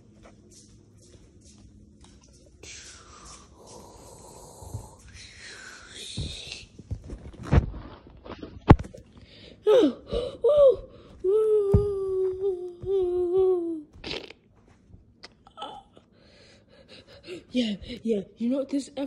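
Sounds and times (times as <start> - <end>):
child breathing: 2.6 - 6.6, 9.2 - 11.4, 16.1 - 18.1
child's wordless ooo voice: 9.7 - 13.9.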